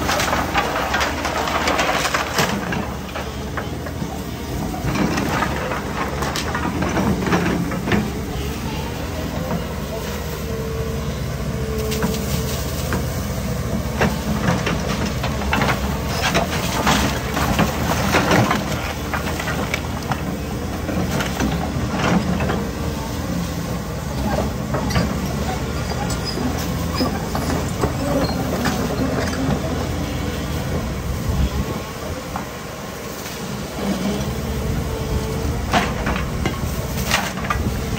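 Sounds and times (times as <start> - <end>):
splintering timber cracking: 0.0 - 3.8
excavator diesel engine running: 0.0 - 37.9.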